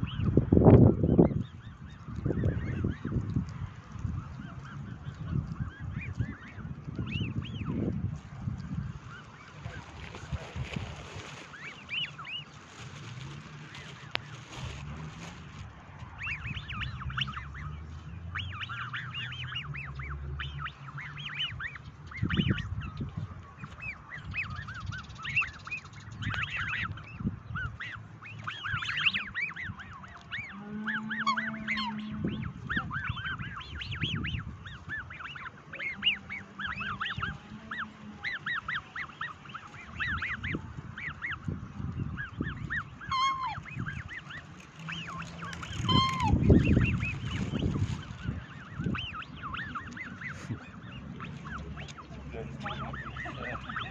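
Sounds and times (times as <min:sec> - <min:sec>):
swans high whistling peeps: 0:04.1 - 0:53.9.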